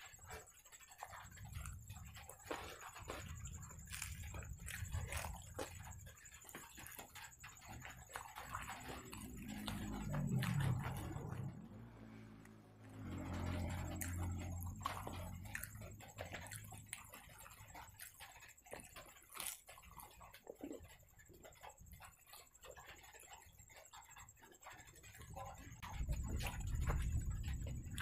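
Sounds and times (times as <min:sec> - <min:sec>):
person chewing food: 0:00.0 - 0:22.6, 0:26.0 - 0:28.0
low steady hum: 0:00.0 - 0:28.0.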